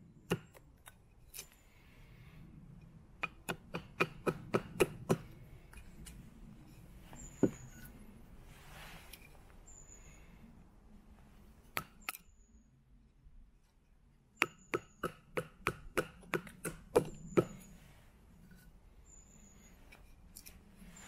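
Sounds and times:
knife chopping wood: 3.2 - 5.3, 14.4 - 17.5.

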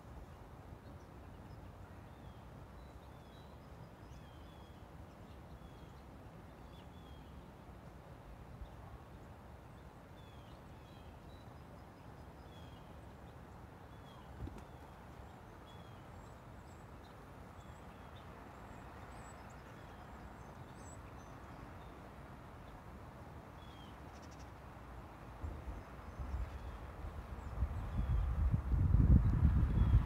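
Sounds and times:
small birds chirping: 8.6 - 28.5.

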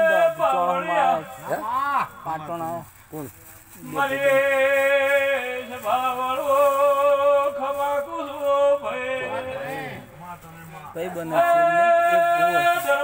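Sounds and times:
man singing devotional song: 0.0 - 13.0.

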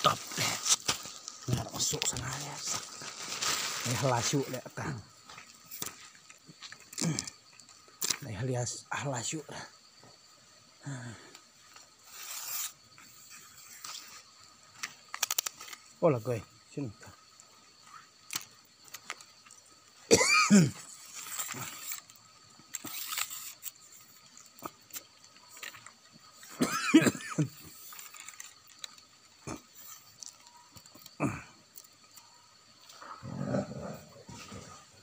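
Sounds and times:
rough animal sound: 12.0 - 14.3, 20.5 - 26.6, 27.6 - 35.0.

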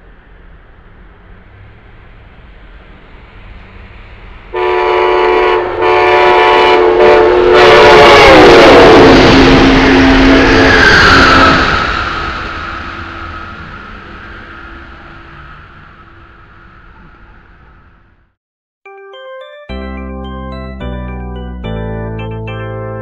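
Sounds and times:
rush of passing train cars: 0.0 - 18.4
train horn: 4.5 - 11.7.

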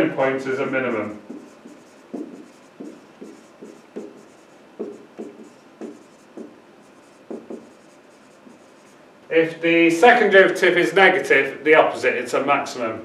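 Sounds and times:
marker writing on whiteboard: 0.0 - 9.0.

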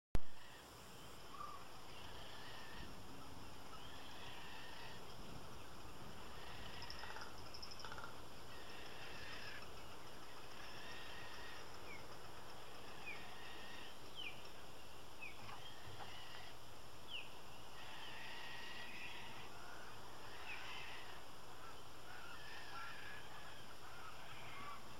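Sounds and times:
steady hiss: 0.3 - 24.9
seabirds chattering calls: 1.3 - 24.9.

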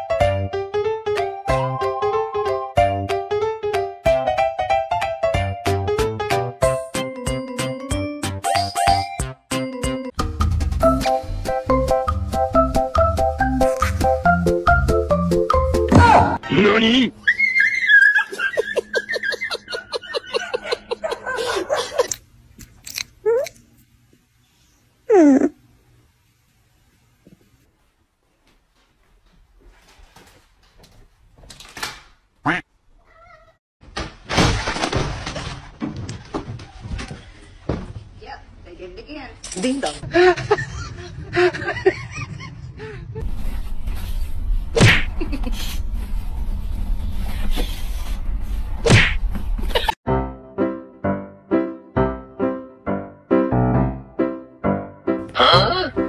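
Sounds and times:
music: 0.0 - 16.4, 50.1 - 56.0
puppy whimpering: 25.1 - 25.6.

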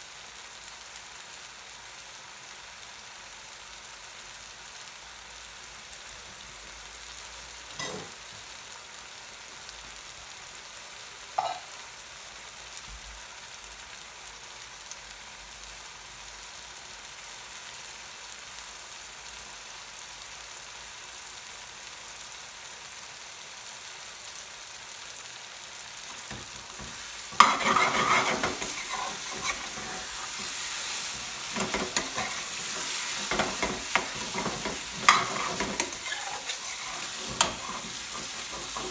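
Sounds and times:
sauce sizzling in a pan: 0.0 - 38.9
sauce popping: 26.1 - 38.9
metal spoon scraping a pan: 26.3 - 38.9.

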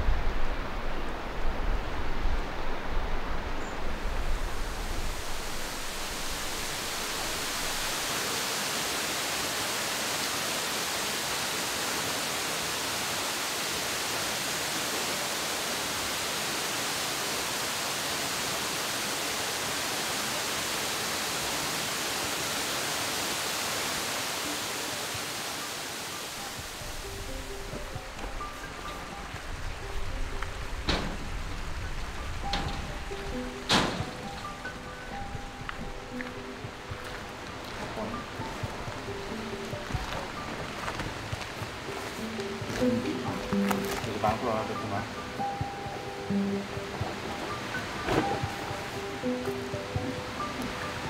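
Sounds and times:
wind buffeting on microphone: 0.0 - 7.9
rush of falling water: 0.0 - 51.0.

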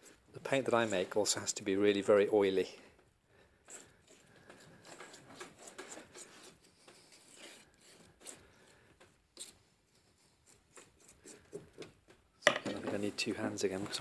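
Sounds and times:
paint scraping and rubbing: 3.5 - 12.1.

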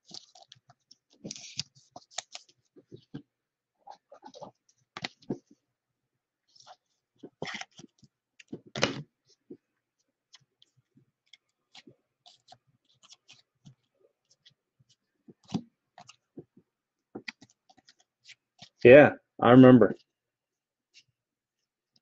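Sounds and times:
cards flipped by hand: 0.0 - 3.2, 4.2 - 5.4, 11.3 - 14.6, 15.3 - 16.2.

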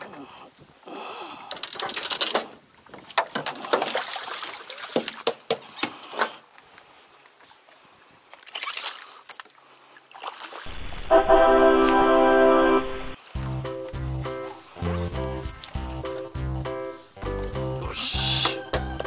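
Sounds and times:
fish splashing in water: 3.2 - 5.4.

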